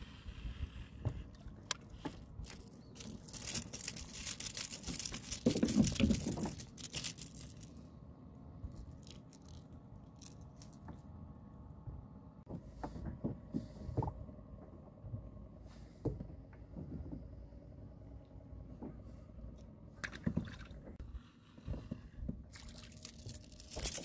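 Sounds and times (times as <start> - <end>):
fish and hooks rattling: 1.7 - 7.8, 8.7 - 10.9, 22.5 - 24.0.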